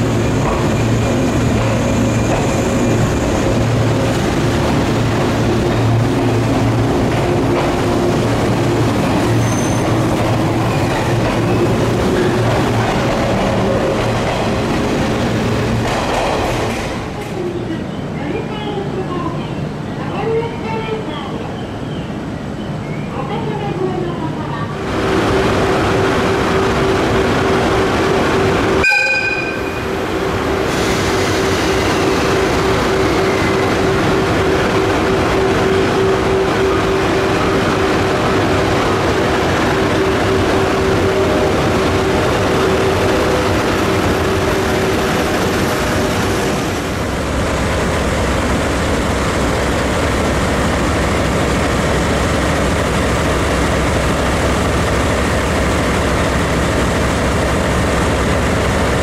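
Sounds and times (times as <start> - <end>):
electric locomotive humming: 0.0 - 59.0
locomotive horn toot: 28.8 - 29.9.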